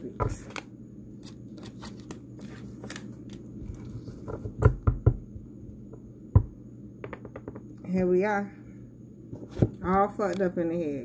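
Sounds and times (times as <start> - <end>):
cards clicking and rustling: 0.4 - 3.5.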